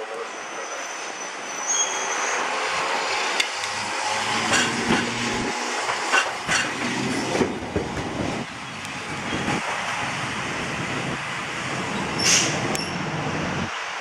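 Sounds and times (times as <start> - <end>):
streetcar traction motors growling: 0.0 - 13.7
wheels knocking on track: 3.4 - 9.7.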